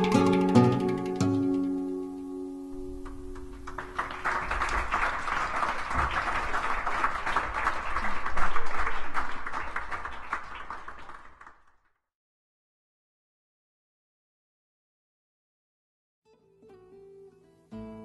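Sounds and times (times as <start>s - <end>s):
handpan ringing: 0.0s - 2.4s
nylon-string guitar notes: 0.0s - 4.0s
audience applauding: 3.0s - 11.8s.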